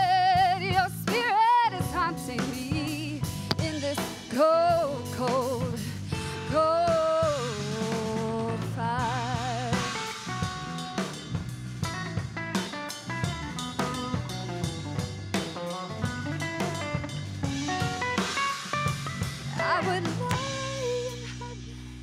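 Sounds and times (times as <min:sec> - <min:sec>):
woman singing with vibrato: 0:00.0 - 0:10.0, 0:19.5 - 0:21.8
drum kit: 0:00.0 - 0:22.0
electric bass: 0:00.0 - 0:22.0
electric guitar: 0:00.0 - 0:22.0.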